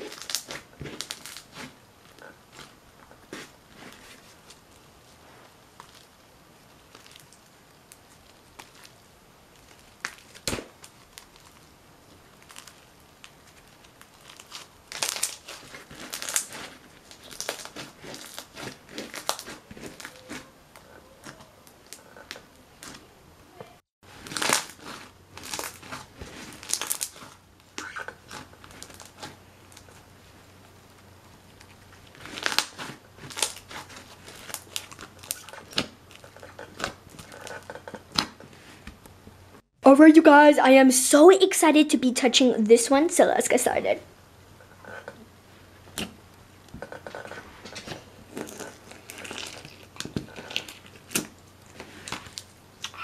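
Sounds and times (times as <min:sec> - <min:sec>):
slime crackling and popping: 0:00.0 - 0:04.9, 0:05.7 - 0:23.0, 0:24.1 - 0:30.0, 0:30.9 - 0:38.4, 0:46.8 - 0:53.0.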